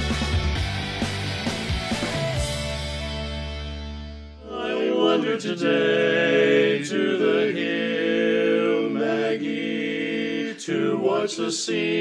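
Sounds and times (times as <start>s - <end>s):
male quartet singing a cappella: 4.4s - 12.0s.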